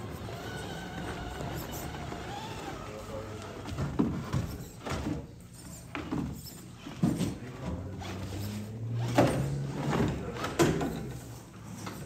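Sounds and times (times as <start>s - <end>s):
toy car electric motor whining: 0.0s - 3.6s.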